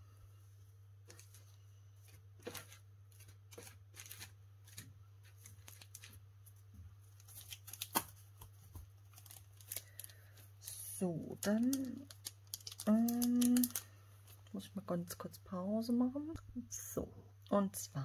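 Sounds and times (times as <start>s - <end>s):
low electrical hum: 0.0s - 18.0s
packaging rustling and clicking: 7.2s - 10.4s, 11.4s - 14.4s.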